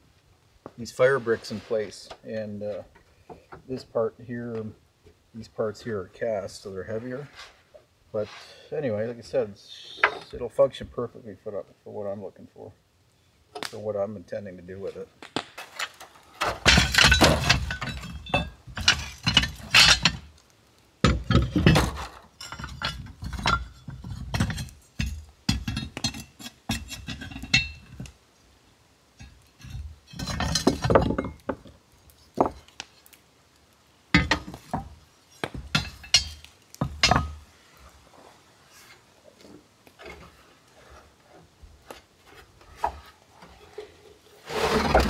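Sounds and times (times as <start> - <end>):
cast iron parts clanking: 15.6 - 20.3, 21.0 - 28.1, 29.2 - 31.7, 34.2 - 37.4, 42.8 - 45.0.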